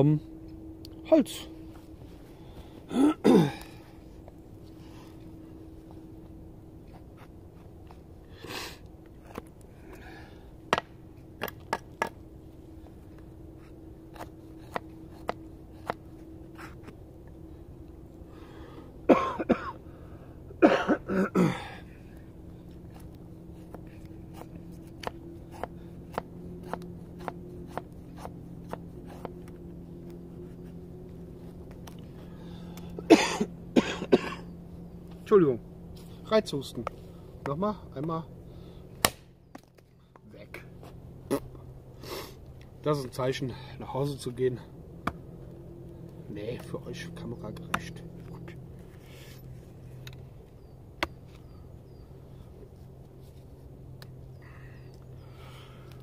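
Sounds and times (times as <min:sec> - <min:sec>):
man coughing: 0:02.9 - 0:03.8, 0:19.1 - 0:19.8, 0:20.6 - 0:21.8, 0:33.0 - 0:34.5.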